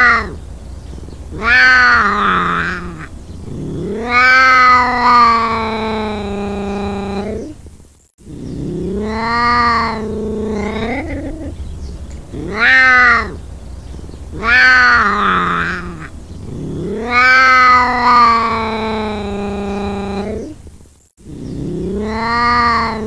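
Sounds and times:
ocelot yowling: 0:00.0 - 0:00.4, 0:01.3 - 0:07.6, 0:08.3 - 0:11.7, 0:12.3 - 0:13.5, 0:14.3 - 0:20.6, 0:21.3 - 0:23.0.

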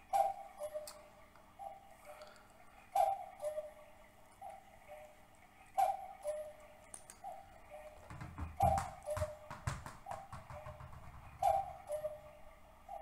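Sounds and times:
hollow tick-tock knocks: 0:08.0 - 0:11.7
low thumps and clicks: 0:08.0 - 0:11.7.

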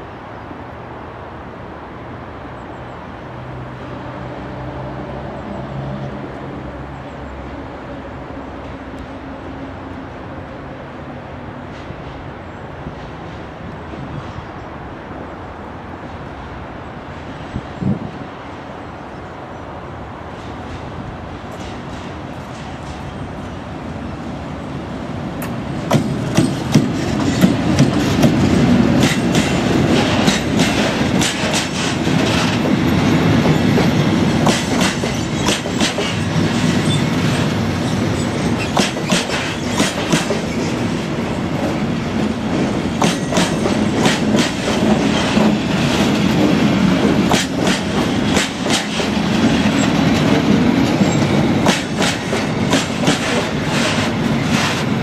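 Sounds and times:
rumble of rolling train wagons: 0:00.0 - 0:55.0
wheels clacking over rail joints: 0:25.4 - 0:55.0.

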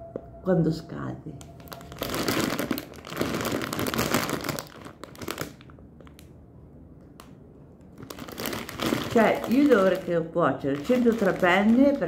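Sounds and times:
plastic bag of pasta crinkling: 0:01.5 - 0:06.3, 0:07.9 - 0:12.0.

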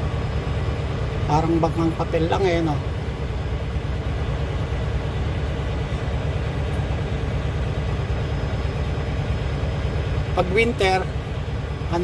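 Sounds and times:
truck diesel engine rumble: 0:00.0 - 0:12.0.

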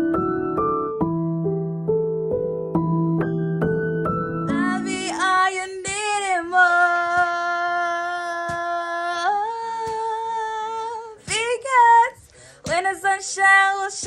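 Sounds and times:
soft keyboard tune: 0:00.0 - 0:09.7.

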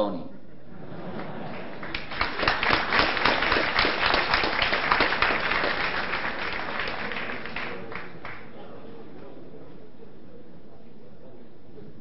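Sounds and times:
audience applauding: 0:01.0 - 0:08.6.

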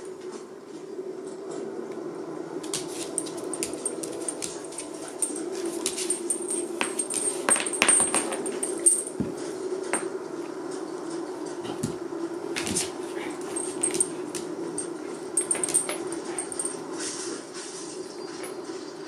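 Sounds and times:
claws clicking on floor: 0:02.6 - 0:09.3, 0:12.6 - 0:16.8
chain collars rattling: 0:02.9 - 0:09.4, 0:13.1 - 0:16.9.

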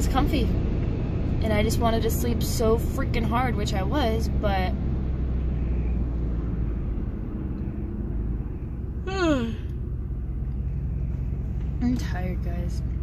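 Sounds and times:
truck cabin rumble while driving: 0:00.0 - 0:13.0
woman yawning: 0:09.0 - 0:09.7.

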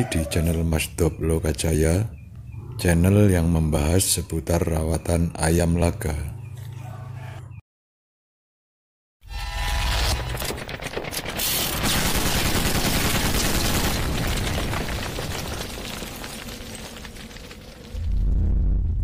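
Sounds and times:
machine gun firing rapidly: 0:10.5 - 0:14.4
deep low boom: 0:18.0 - 0:19.0.

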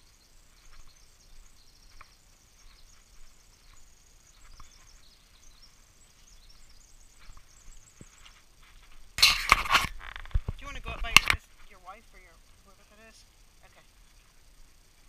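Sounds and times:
footsteps on wooden boardwalk: 0:00.0 - 0:09.1.

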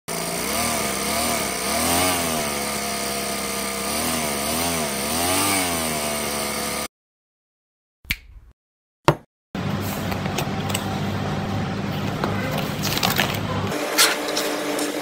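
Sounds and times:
model engine revving: 0:00.1 - 0:06.9.

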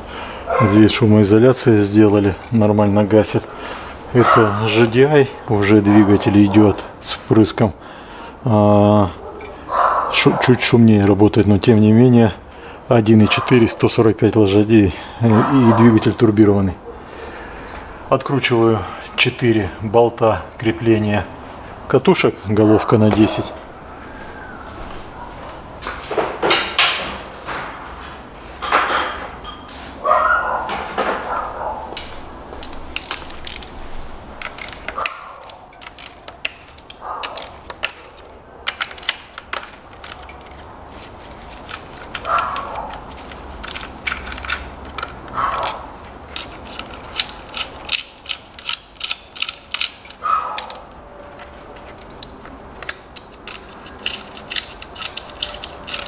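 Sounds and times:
ratchet wrench clicking: 0:34.4 - 0:38.0, 0:46.4 - 0:50.8, 0:52.1 - 0:56.0.

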